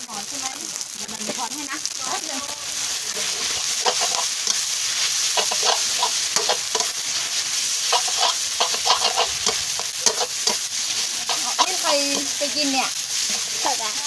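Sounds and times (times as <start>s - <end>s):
noodles sizzling in a wok: 0.0s - 14.0s
metal spatula scraping a wok: 2.8s - 13.9s.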